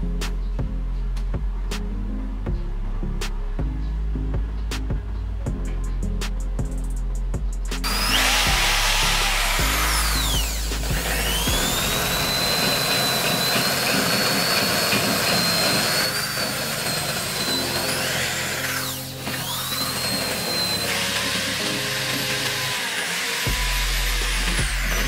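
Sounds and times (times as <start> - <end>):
rotary tool whining: 7.8 - 25.0.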